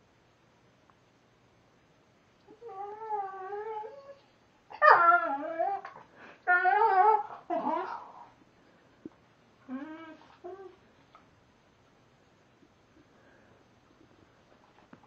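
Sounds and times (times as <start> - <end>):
dog whining: 2.5 - 8.3, 9.6 - 10.8.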